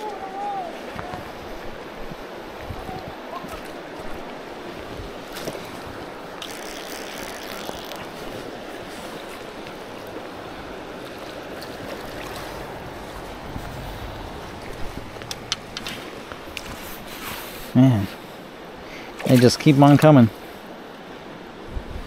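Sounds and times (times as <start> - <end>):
wind rumble on microphone: 0.9 - 3.3, 9.8 - 17.6, 21.5 - 22.0
river rushing over rocks: 7.5 - 19.1.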